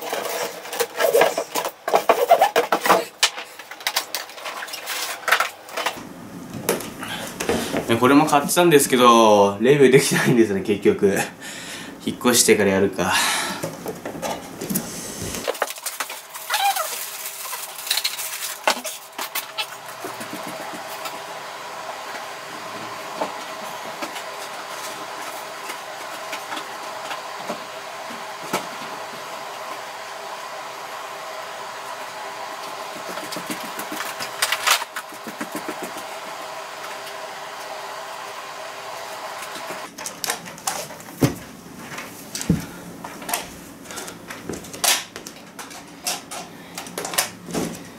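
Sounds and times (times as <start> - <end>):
room hiss: 14.6 - 15.6.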